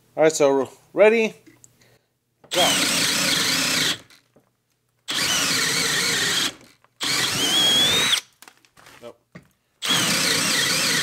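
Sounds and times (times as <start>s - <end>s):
drill boring into wood: 2.5s - 4.2s, 5.1s - 8.3s, 9.8s - 11.0s.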